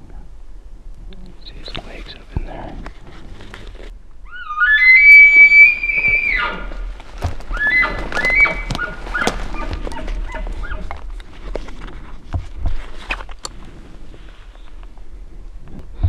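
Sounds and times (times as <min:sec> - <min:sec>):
elk bugling: 0:04.2 - 0:11.4.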